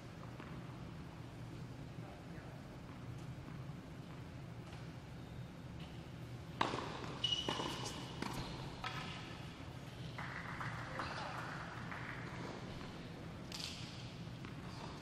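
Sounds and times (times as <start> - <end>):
tennis ball bouncing: 6.6 - 9.2
high shoe squeak: 7.1 - 8.6.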